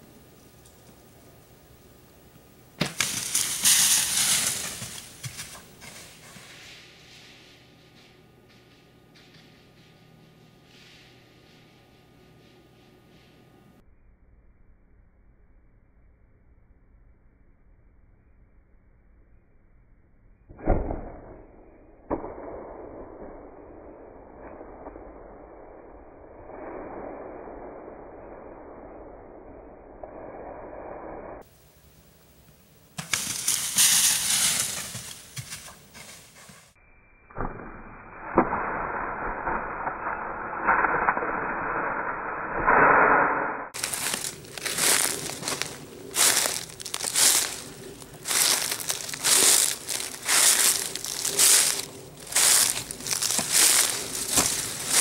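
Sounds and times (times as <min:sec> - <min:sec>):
deer crashing through dry leaves: 0:02.8 - 0:07.3, 0:33.0 - 0:36.6, 0:43.8 - 0:55.0.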